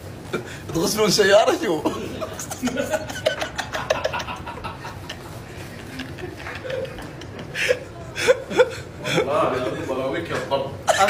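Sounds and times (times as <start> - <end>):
steady background hum: 0.0 - 11.0
men chuckling: 1.8 - 9.8.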